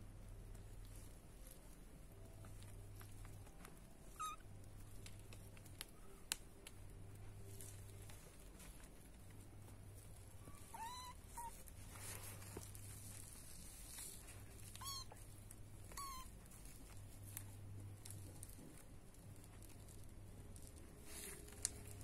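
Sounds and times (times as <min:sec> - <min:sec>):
kitten mewing: 0:10.6 - 0:11.6, 0:15.9 - 0:16.3.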